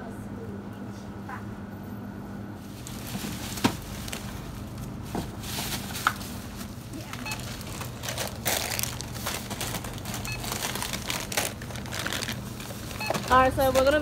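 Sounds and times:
plastic packaging rustling: 2.6s - 14.0s
barcode scanner beeps: 7.2s - 7.6s, 10.2s - 10.6s, 12.9s - 14.0s.

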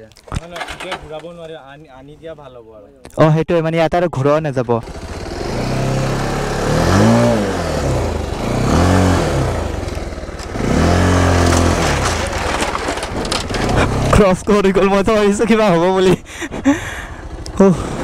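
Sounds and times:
motorcycle engine revving: 4.7s - 16.2s, 16.8s - 18.0s.

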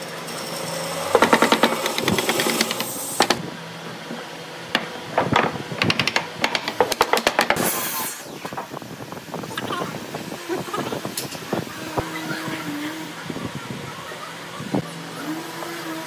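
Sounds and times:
wood pieces knocking together: 1.1s - 3.4s, 4.7s - 7.8s
wooden block tapping rail: 1.1s - 3.4s, 4.8s - 7.6s.

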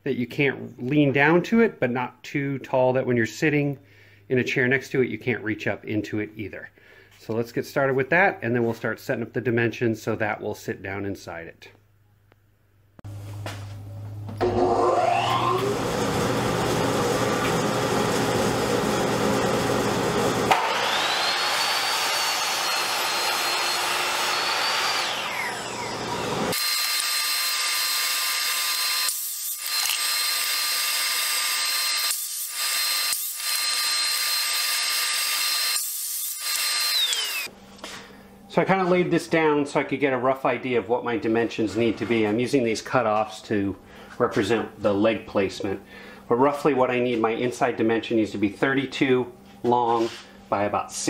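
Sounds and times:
miter saw blade whine: 14.4s - 16.0s, 20.5s - 37.5s.

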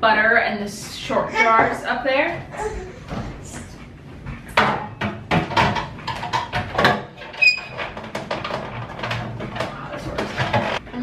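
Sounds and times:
plastic shelf bins knocking: 4.5s - 7.2s.

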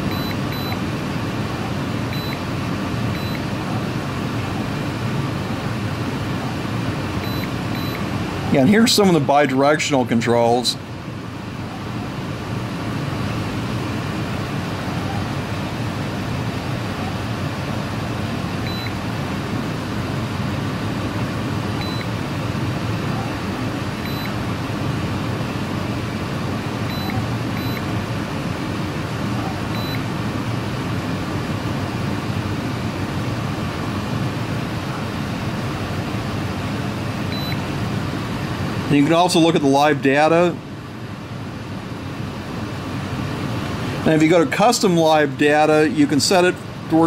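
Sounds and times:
short high key beeps: 0.1s - 0.8s, 2.1s - 2.4s, 3.1s - 3.4s, 7.2s - 8.0s, 21.8s - 22.1s, 24.0s - 24.4s, 26.9s - 27.9s, 29.7s - 30.0s, 37.3s - 37.6s.

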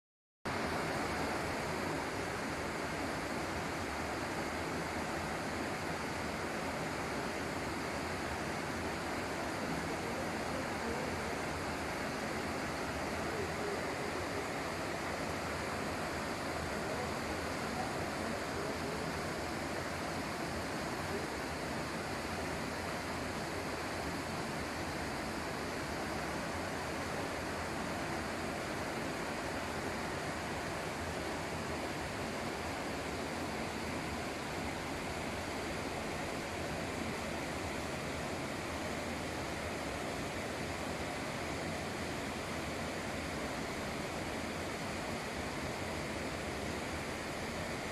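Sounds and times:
river rushing over a weir: 0.5s - 47.9s.

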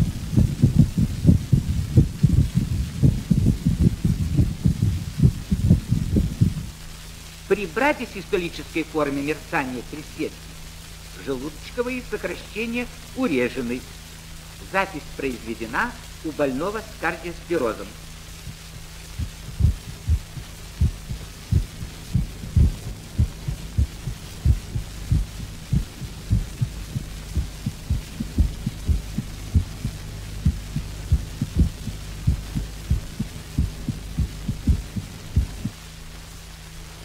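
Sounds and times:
dull irregular heartbeats: 0.0s - 6.8s, 18.3s - 35.8s
record hum and surface hiss: 0.0s - 37.0s.

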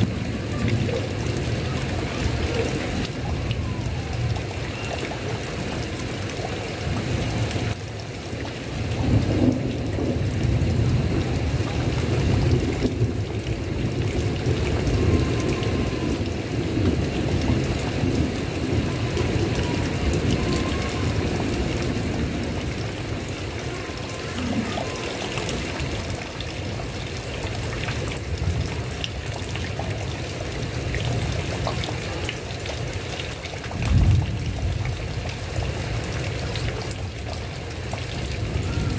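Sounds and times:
heavy rain on a tile roof: 0.0s - 38.9s
low thunder rumbling: 8.8s - 29.5s, 33.8s - 36.2s.

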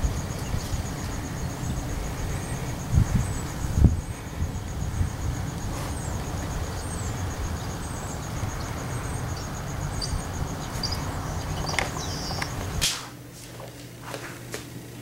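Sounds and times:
wind rumble: 0.0s - 12.9s
faint pulsing high chirp: 4.8s - 12.6s.

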